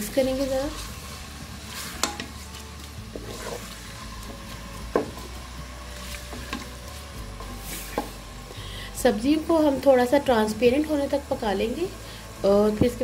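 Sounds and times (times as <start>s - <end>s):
faint sizzle of frying: 0.0s - 13.0s
spatula scraping a pot: 0.5s - 8.2s.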